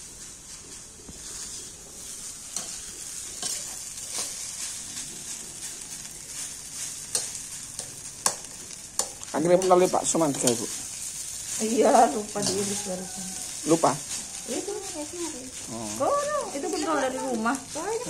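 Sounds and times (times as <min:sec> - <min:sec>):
metal spatula scraping: 0:00.0 - 0:18.0
rice sizzling in a wok: 0:00.0 - 0:18.0
spatula clicking against wok: 0:07.1 - 0:09.8.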